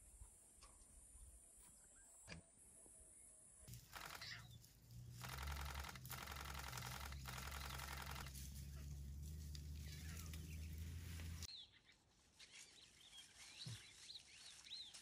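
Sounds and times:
vehicle engine idling: 3.7 - 11.5.

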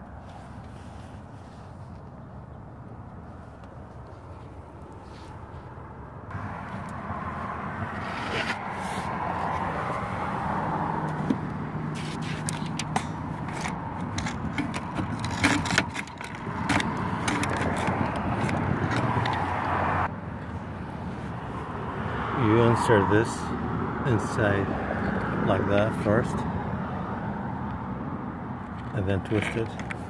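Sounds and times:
traffic noise: 0.0 - 30.0
sharp clicks and scrapes: 8.0 - 9.6, 11.1 - 19.8, 28.7 - 30.0.

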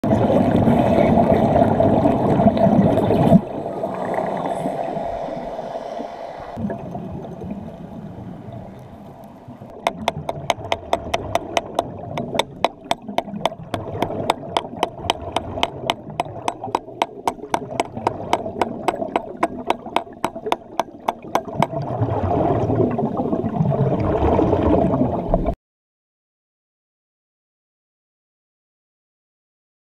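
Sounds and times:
gurgling bubbles: 6.6 - 25.5
underwater welding arc crackling: 8.8 - 21.7
evenly spaced sharp clicks: 9.9 - 21.6.

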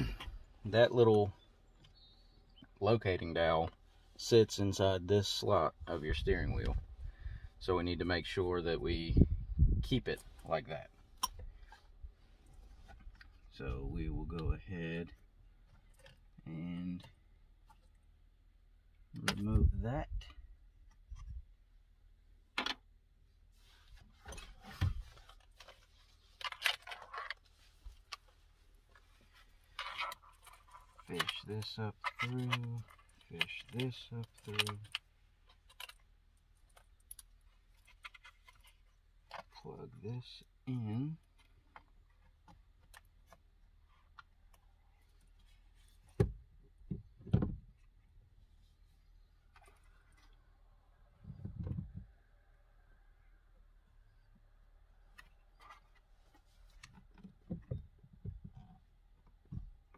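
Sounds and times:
faint clicks of parts handled: 23.8 - 39.6.

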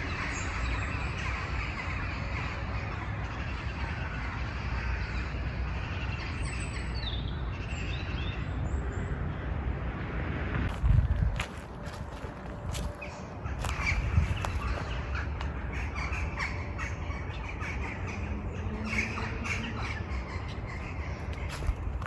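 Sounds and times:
birds calling: 0.0 - 9.0, 10.7 - 22.0
steady low rumble: 8.5 - 22.0.

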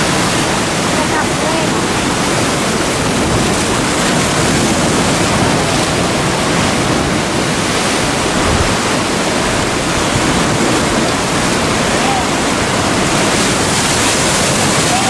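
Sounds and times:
surf breaking over rocks: 0.0 - 15.0.

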